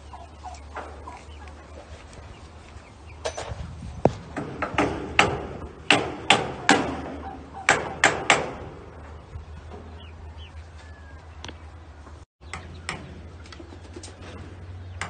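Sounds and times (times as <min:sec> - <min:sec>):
sharp ringing knocks: 0:04.3 - 0:09.2.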